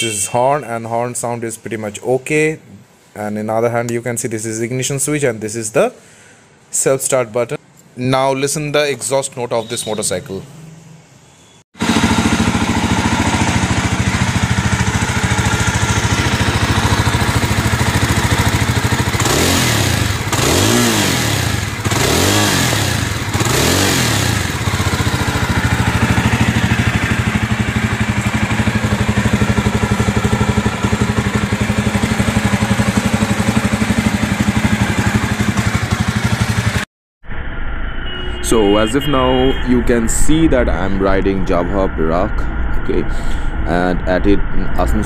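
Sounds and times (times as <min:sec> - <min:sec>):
motorcycle engine idling and revving: 0:11.8 - 0:36.9.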